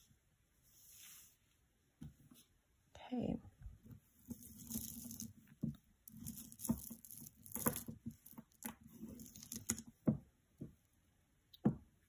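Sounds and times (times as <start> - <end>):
beads and chains clicking: 4.3 - 5.4, 6.1 - 9.8.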